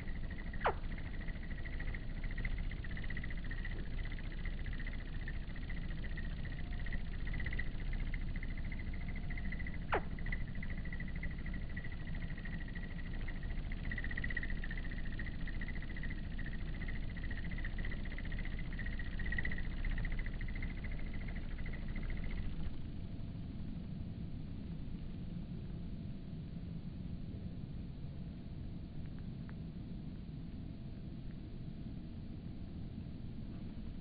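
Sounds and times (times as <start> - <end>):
downward-sweeping chirp: 0.0 - 22.8
crickets trilling: 0.0 - 23.2
low rumble: 0.0 - 34.0.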